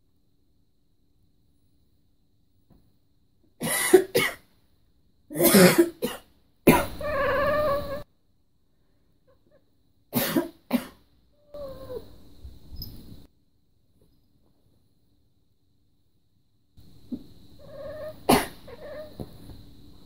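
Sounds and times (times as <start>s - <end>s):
person coughing: 3.6s - 4.4s, 5.3s - 6.9s, 10.2s - 11.0s, 18.3s - 18.6s
cat meowing: 6.8s - 8.0s, 11.4s - 12.1s, 17.6s - 19.3s.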